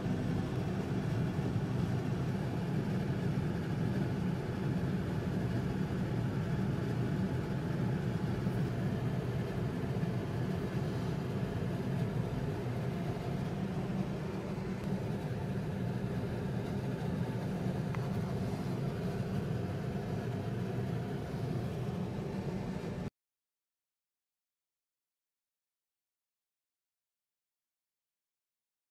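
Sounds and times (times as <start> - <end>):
low mechanical hum: 0.0 - 23.1.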